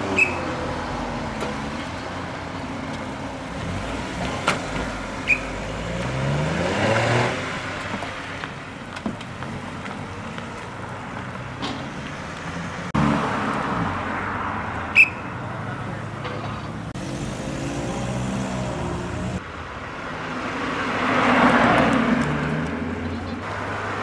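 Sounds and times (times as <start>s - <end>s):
car engines driving off: 0.0s - 24.0s.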